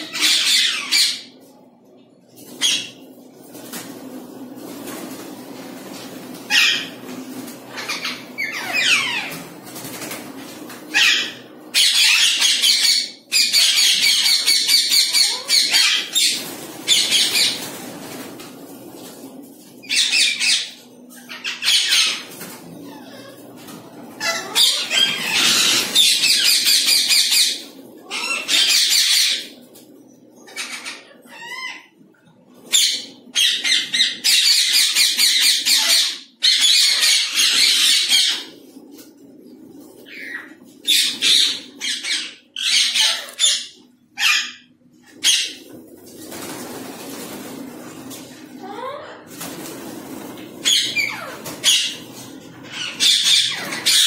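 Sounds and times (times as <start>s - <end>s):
parakeets screeching: 0.0s - 1.4s, 2.4s - 3.1s, 4.6s - 18.3s, 19.8s - 29.7s, 30.4s - 32.0s, 32.6s - 54.0s
birds flapping wings: 2.3s - 11.5s, 15.3s - 20.1s, 22.0s - 27.9s, 45.5s - 52.7s.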